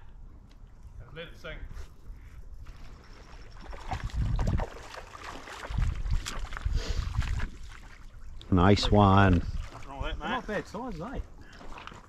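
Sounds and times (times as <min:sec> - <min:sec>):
wind buffeting microphone: 0:02.0 - 0:11.4
water splashing: 0:02.8 - 0:12.0.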